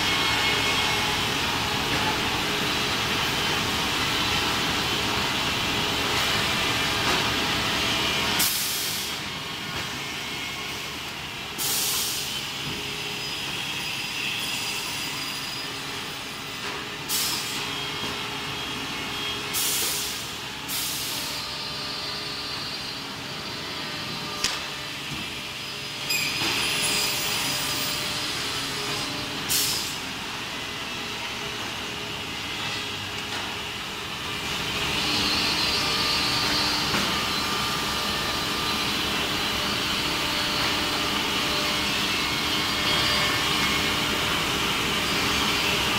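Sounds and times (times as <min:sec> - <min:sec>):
factory machinery running: 0:00.0 - 0:45.9
air hiss bursts: 0:08.4 - 0:09.1, 0:11.6 - 0:12.3, 0:19.6 - 0:21.2, 0:29.5 - 0:30.0.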